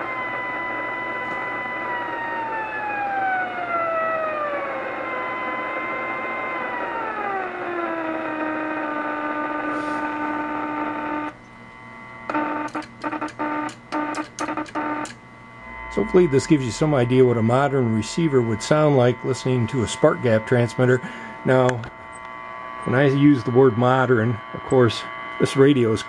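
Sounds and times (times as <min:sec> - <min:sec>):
buzzing radio tone: 0:00.0 - 0:26.0
radio hiss: 0:09.5 - 0:10.4, 0:15.6 - 0:26.0.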